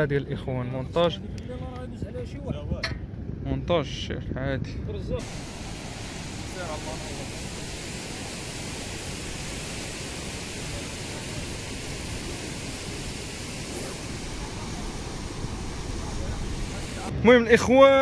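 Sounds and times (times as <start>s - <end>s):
sea surf breaking on rocks: 5.2s - 17.1s.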